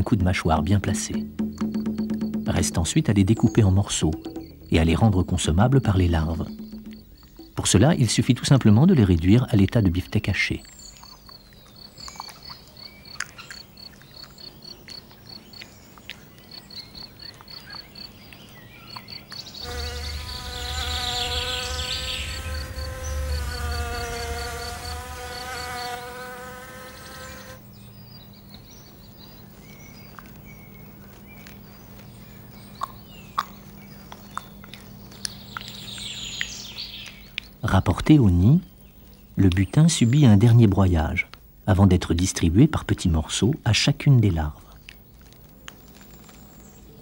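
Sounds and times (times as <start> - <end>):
high insect chirps: 0.5 - 15.7, 18.8 - 27.6
wasp buzzing in flight: 19.6 - 27.6.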